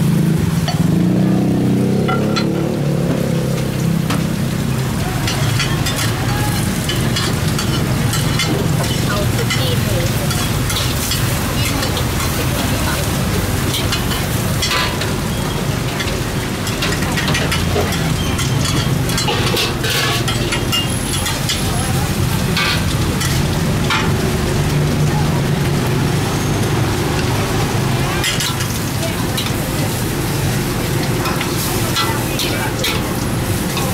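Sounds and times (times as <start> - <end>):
greens sizzling in a wok: 0.0 - 33.9
metal spatula scraping wok: 5.3 - 12.9, 13.5 - 24.2.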